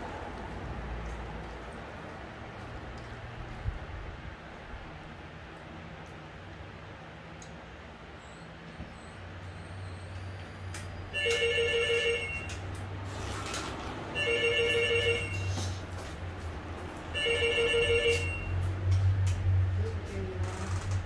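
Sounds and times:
telephone ringing: 11.1s - 12.6s, 14.2s - 15.6s, 17.1s - 18.6s.

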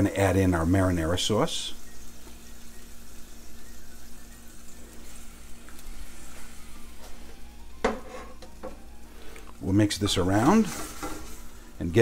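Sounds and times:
sauce simmering with soft sizzle: 0.0s - 12.0s
spatula scraping pan: 7.9s - 8.5s, 10.6s - 11.4s.

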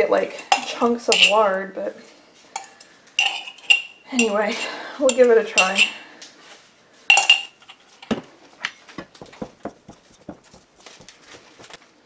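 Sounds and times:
metal knife clinking: 0.4s - 1.5s, 2.6s - 6.0s, 7.1s - 7.8s.

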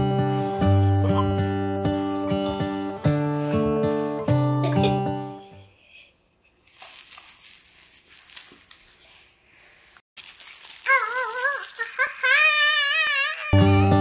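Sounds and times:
baby toys rattling: 6.6s - 9.1s, 10.2s - 13.5s.

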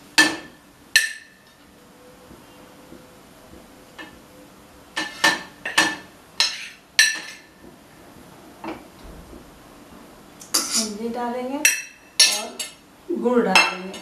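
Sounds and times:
spoon scraping on plate: 5.0s - 5.5s, 6.4s - 7.5s, 10.4s - 10.9s.

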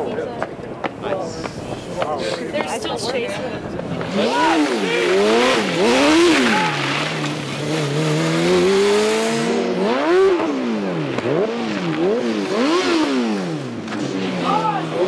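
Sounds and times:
race car engine revving: 3.6s - 15.0s.

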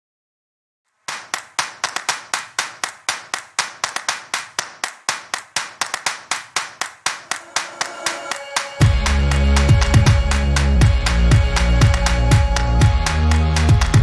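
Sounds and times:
rhythmic hand claps: 1.0s - 14.0s
instrumental pop song: 7.1s - 14.0s.

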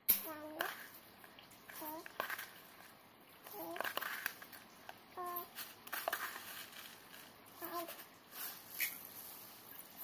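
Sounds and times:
dry rice grains pouring into pot: 8.3s - 10.0s.

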